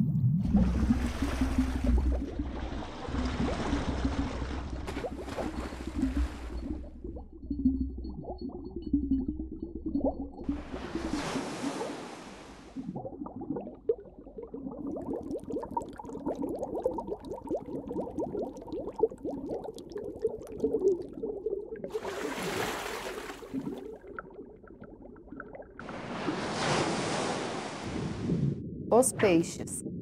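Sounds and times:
underwater bubbling and gurgling: 0:00.0 - 0:26.7, 0:27.8 - 0:29.0
rush of water: 0:21.9 - 0:23.6, 0:25.8 - 0:28.4.

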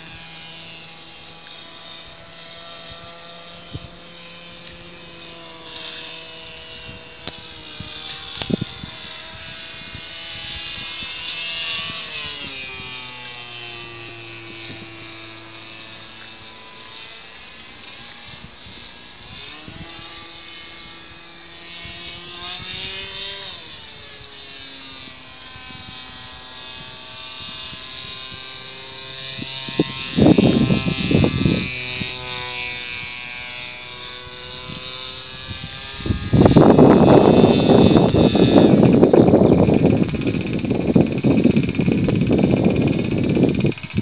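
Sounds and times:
model airplane motor droning: 0:00.0 - 0:44.0
wind rushing on microphone: 0:00.0 - 0:44.0.

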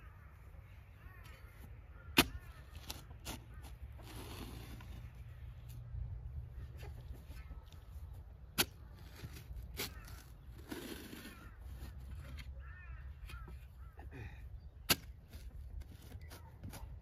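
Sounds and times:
crow-like bird calls: 0:00.0 - 0:04.1, 0:06.6 - 0:08.1, 0:08.7 - 0:14.8.

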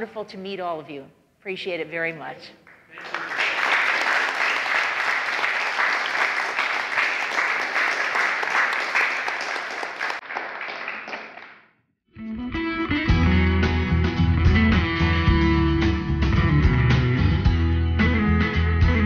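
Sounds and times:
audience applauding: 0:02.7 - 0:11.7
guitar music: 0:12.1 - 0:19.0.

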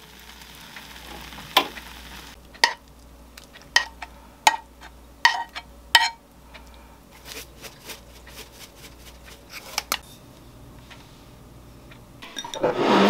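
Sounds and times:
metal spoon scraping a pan: 0:03.6 - 0:06.2, 0:12.2 - 0:13.0.

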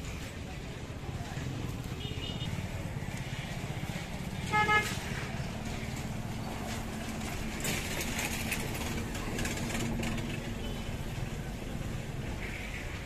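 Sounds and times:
street traffic rumble: 0:00.0 - 0:13.0
vehicle horn toot: 0:04.5 - 0:05.0.

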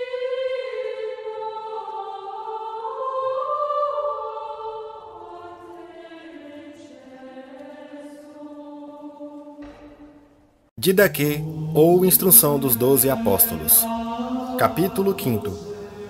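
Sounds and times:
choir singing sustained chords: 0:00.0 - 0:16.0.

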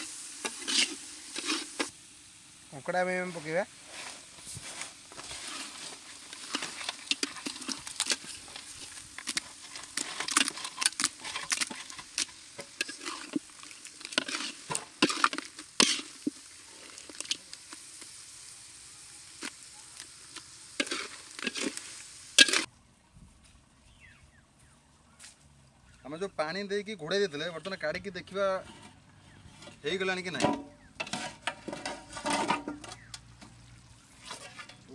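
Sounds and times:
metal ladle scraping a pan: 0:00.0 - 0:01.9, 0:03.8 - 0:17.4, 0:20.8 - 0:22.7, 0:28.4 - 0:34.9
food sizzling in a pan: 0:00.0 - 0:22.7.

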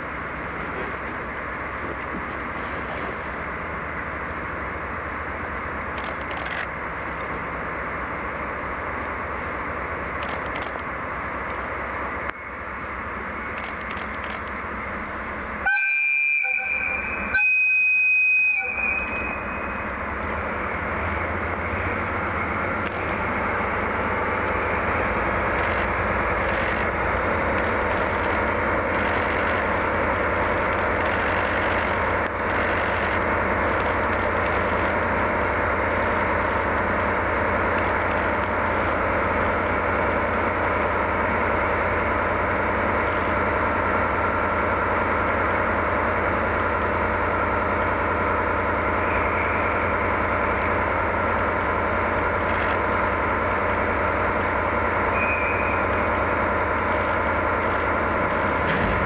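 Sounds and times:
diesel engines rumbling: 0:00.0 - 0:59.0
locomotive horn blasts: 0:15.6 - 0:19.8.

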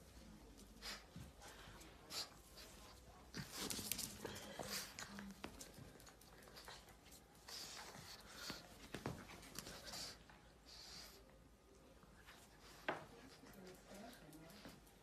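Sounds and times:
plush toy rustling: 0:07.8 - 0:09.9.

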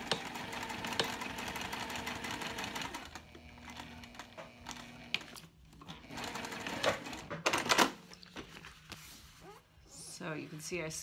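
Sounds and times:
sewing machine stitching: 0:00.0 - 0:07.9.

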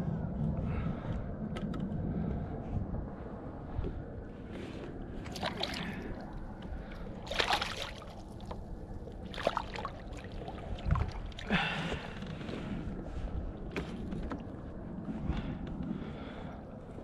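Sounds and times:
water sloshing: 0:05.2 - 0:14.6
fish splashing at water surface: 0:07.3 - 0:08.1.

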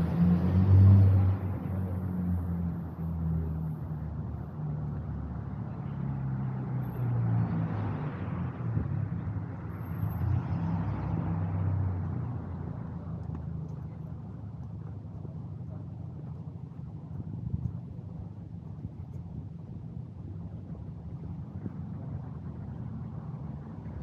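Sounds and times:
vehicle passing: 0:00.0 - 0:02.7
vehicle engines humming: 0:00.0 - 0:24.0.

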